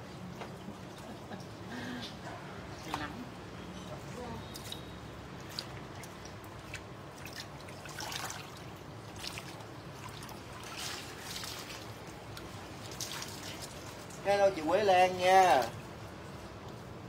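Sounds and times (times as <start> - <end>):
water trickling and dripping: 0.0 - 16.9
small splashes: 4.0 - 14.3.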